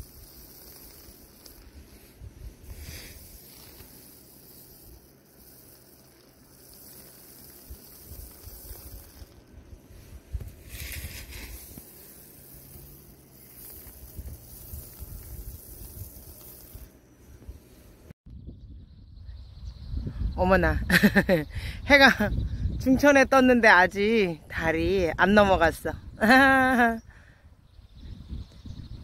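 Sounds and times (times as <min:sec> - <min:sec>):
wind rumbling on microphone: 0:00.0 - 0:03.5, 0:07.4 - 0:12.1, 0:12.7 - 0:29.0
steady high hiss: 0:00.0 - 0:18.2.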